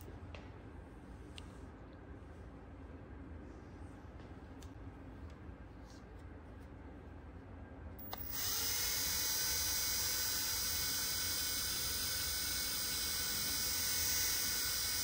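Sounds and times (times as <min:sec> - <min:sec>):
cordless drill whining: 0:08.0 - 0:15.0
drill click: 0:08.0 - 0:15.0.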